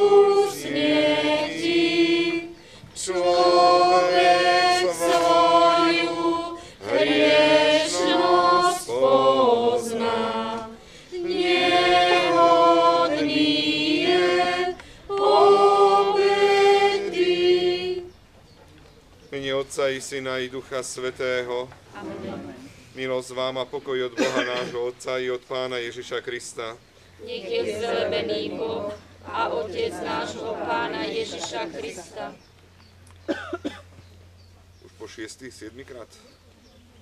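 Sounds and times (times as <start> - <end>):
congregation singing a hymn: 0.0 - 18.2, 27.2 - 32.5.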